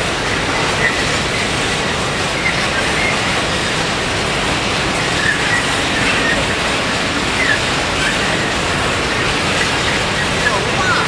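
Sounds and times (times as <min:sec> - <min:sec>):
train wheels rolling on track: 0:00.0 - 0:11.0
faint wheel squeals: 0:05.2 - 0:06.5.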